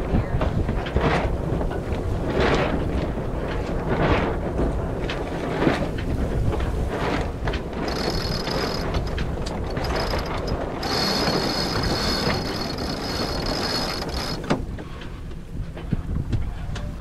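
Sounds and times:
wind buffeting microphone: 0.0s - 17.0s
high steady tone: 7.9s - 14.5s.

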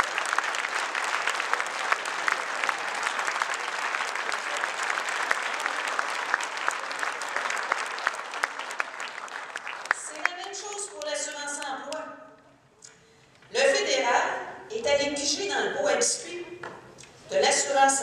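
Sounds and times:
large audience applauding: 0.0s - 11.2s.

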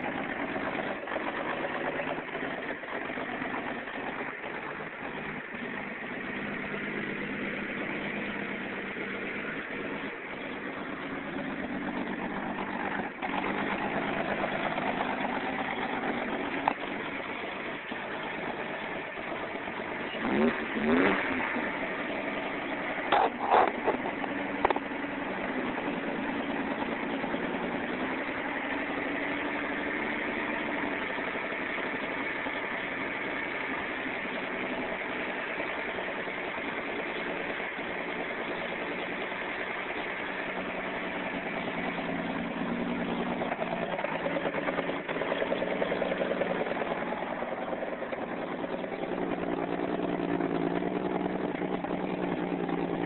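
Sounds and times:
pickup engine idling: 0.0s - 53.0s.

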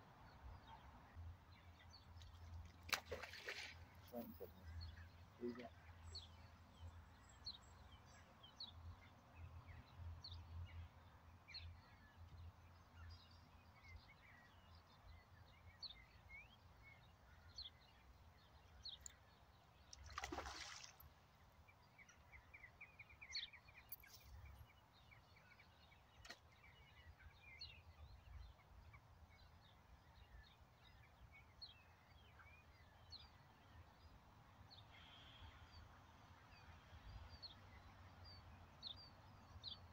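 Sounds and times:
faint bird chirps: 34.8s - 35.8s.

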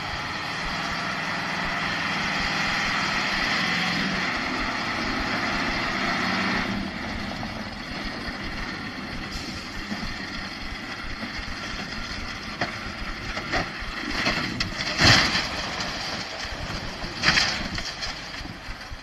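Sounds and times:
truck engine rumbling: 0.0s - 19.0s
truck crashing onto its side: 13.4s - 18.7s.

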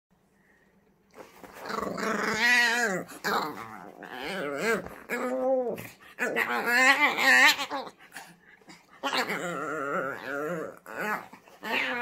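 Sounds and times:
puppy grumbling and whining: 1.5s - 12.0s.

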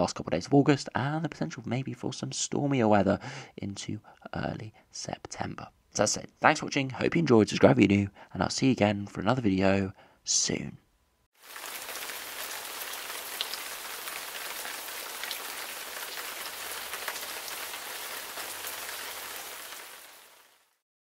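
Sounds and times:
steady rain falling: 11.4s - 20.8s.

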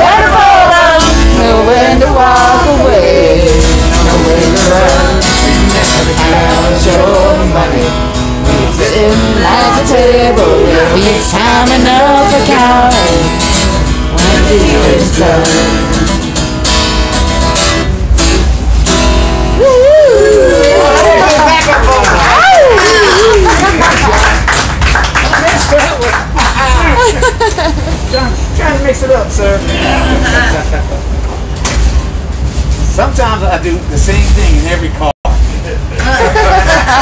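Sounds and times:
man singing: 0.0s - 13.4s, 14.1s - 16.2s
strummed acoustic guitar: 0.0s - 19.6s, 29.4s - 31.1s
low rumble of train car: 0.0s - 37.0s.

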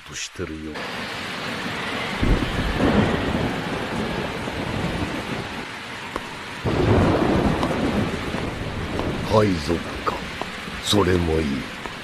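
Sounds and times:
heavy rain falling: 0.0s - 12.0s
rolling rumble of thunder: 1.5s - 12.0s.

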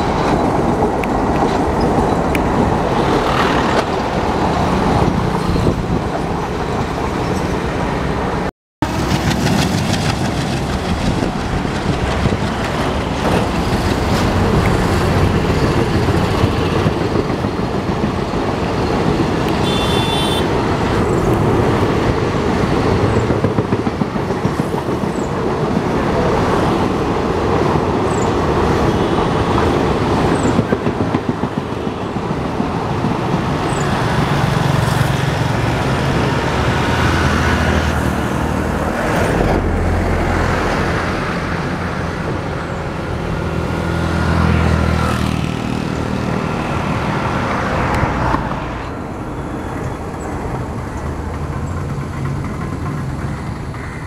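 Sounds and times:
train wheels rumbling on rails: 0.0s - 54.0s
clatter over rail joints: 8.8s - 19.6s, 50.1s - 54.0s.

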